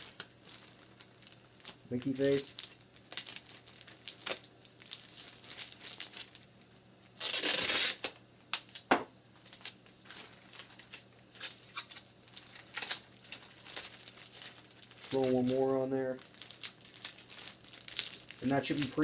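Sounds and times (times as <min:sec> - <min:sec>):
plastic bag crinkling: 0:00.0 - 0:08.0, 0:08.6 - 0:19.0
tape ripping off roll: 0:07.1 - 0:08.8.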